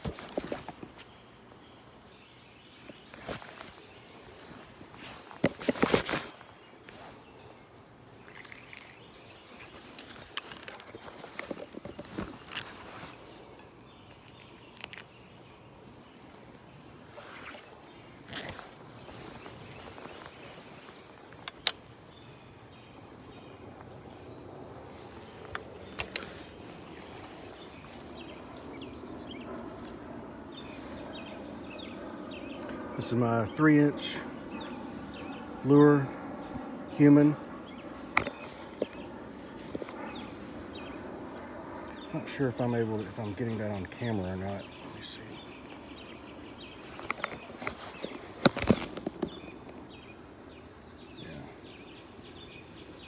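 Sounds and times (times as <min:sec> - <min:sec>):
handling knocks and rustles: 0:00.0 - 0:01.1, 0:02.8 - 0:07.2, 0:08.2 - 0:15.1, 0:15.8 - 0:21.9, 0:25.0 - 0:28.7, 0:38.0 - 0:40.3, 0:46.8 - 0:49.9
low background noise: 0:00.0 - 0:53.0
small birds chirping: 0:00.0 - 0:53.0.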